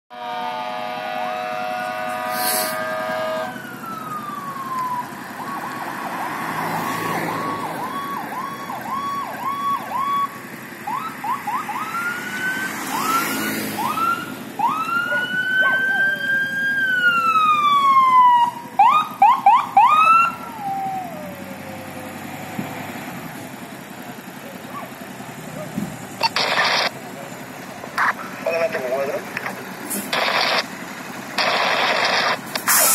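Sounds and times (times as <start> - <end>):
multi-note horn blast: 0.1 - 3.6
fire engine siren wailing and yelping: 0.2 - 32.9.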